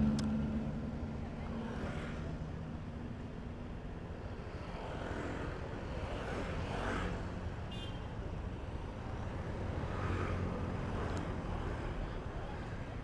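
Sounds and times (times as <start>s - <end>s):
idling scooter and car engines: 0.0s - 3.7s.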